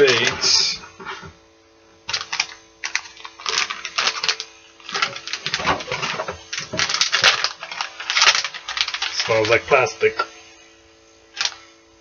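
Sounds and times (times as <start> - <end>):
plastic package crinkling: 0.0 - 0.5, 2.1 - 10.2, 11.3 - 11.7.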